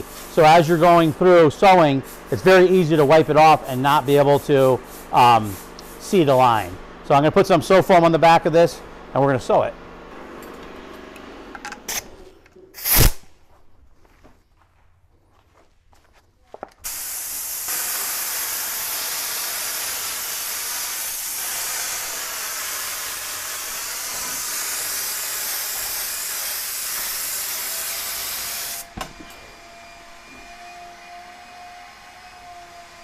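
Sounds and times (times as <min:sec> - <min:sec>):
spray gun hissing: 0:00.0 - 0:06.7, 0:16.8 - 0:28.9.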